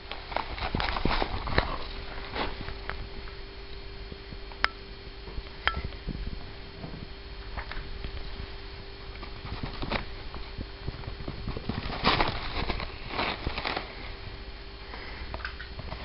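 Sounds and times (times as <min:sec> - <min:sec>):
paper towels rustling: 0:00.0 - 0:02.8, 0:09.1 - 0:14.4.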